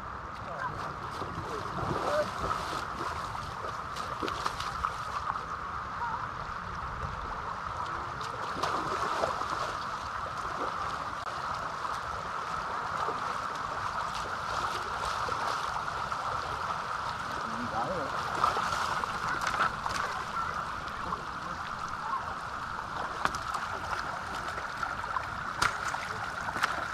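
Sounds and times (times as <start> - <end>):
water rushing across ground: 0.0 - 26.9
bare feet splashing in water: 0.6 - 5.4, 17.0 - 26.9.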